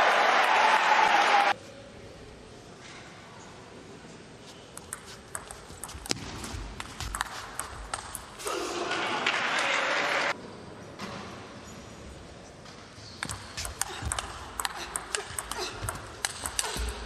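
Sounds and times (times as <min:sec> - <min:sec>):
applause: 0:00.0 - 0:01.5
table tennis ball clicking: 0:04.8 - 0:08.3.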